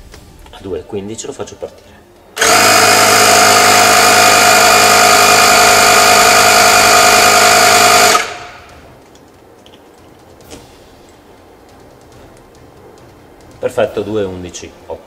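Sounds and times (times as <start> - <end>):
tyre compressor running: 2.4 - 9.0.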